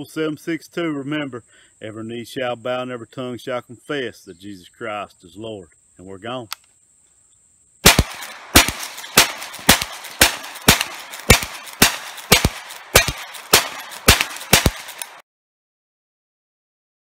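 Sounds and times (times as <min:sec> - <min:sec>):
rifle shots with echo: 0:07.8 - 0:15.2.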